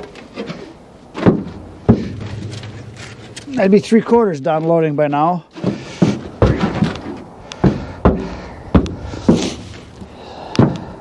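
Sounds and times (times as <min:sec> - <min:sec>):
sharp knocks in truck bed: 0:01.2 - 0:03.4, 0:05.6 - 0:09.7.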